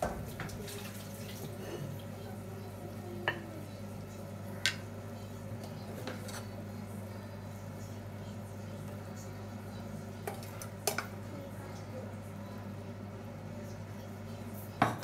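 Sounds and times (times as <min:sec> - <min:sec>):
spoon stirring in saucepan: 0:05.6 - 0:06.6.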